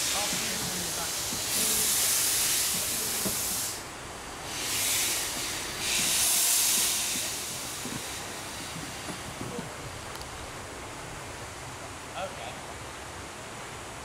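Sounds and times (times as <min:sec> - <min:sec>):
steam locomotive hissing: 0:00.0 - 0:11.2.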